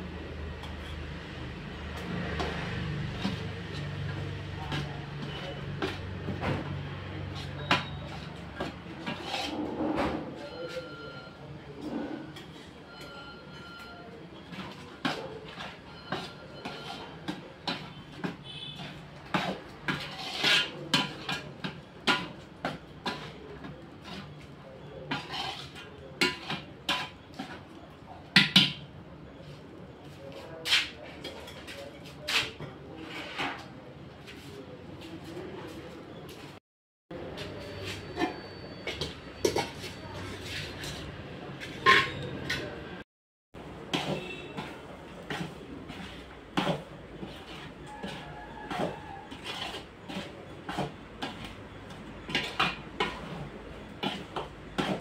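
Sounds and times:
metal ladle scraping cooking pot: 2.4s - 6.4s, 7.2s - 10.4s, 14.5s - 28.9s, 30.6s - 33.7s, 37.8s - 42.6s, 43.8s - 55.0s.

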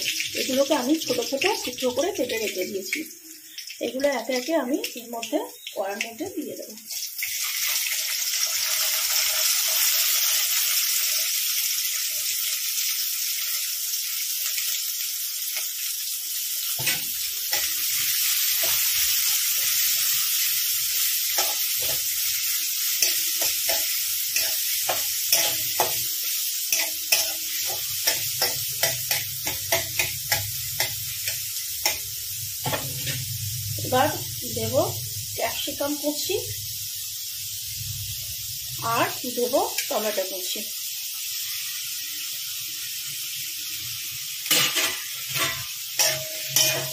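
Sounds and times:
onions sizzling in oil: 0.0s - 46.9s
metal spatula scraping pan: 23.0s - 26.1s, 26.7s - 32.0s, 44.5s - 46.9s.

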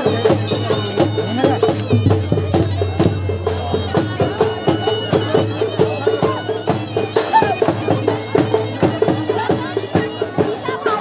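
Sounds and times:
shrill wind instrument melody: 0.2s - 8.3s
quick drum beat: 0.2s - 10.5s.

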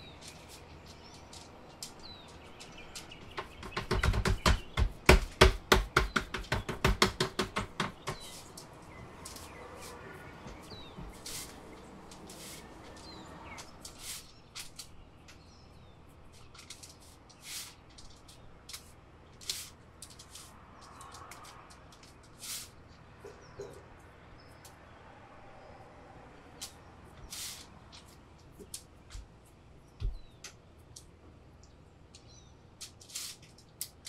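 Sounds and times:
hands patting dough: 0.2s - 14.2s
parchment paper crinkling: 16.3s - 22.6s.

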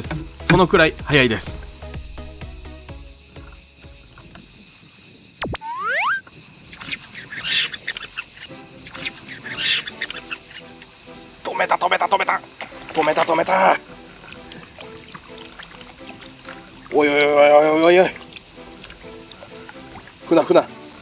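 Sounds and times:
crickets chirring: 0.0s - 21.0s
rising whistle-like glide: 5.4s - 7.7s.

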